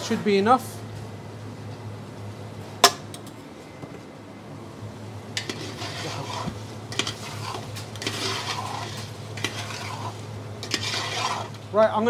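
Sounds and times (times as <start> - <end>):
meat sizzling in oil: 5.4 - 11.7
metal ladle scraping a pot: 5.4 - 11.7.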